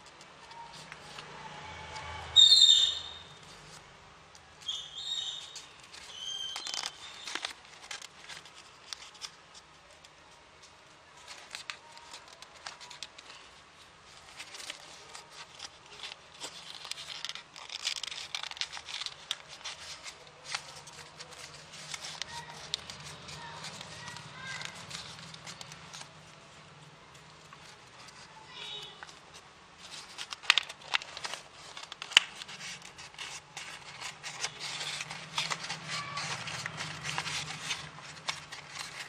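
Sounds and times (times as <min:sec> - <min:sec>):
paper folding and crinkling: 0:00.0 - 0:02.2, 0:03.4 - 0:39.0
high-pitched chirps: 0:02.4 - 0:03.4.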